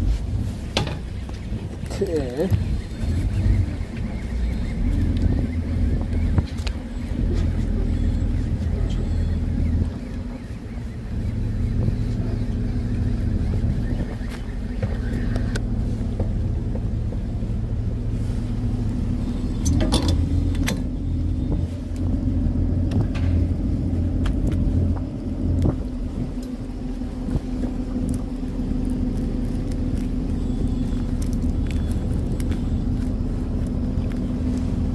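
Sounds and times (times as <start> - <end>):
boat engine humming: 0.0 - 34.9
gear clicks and knocks: 19.5 - 34.9.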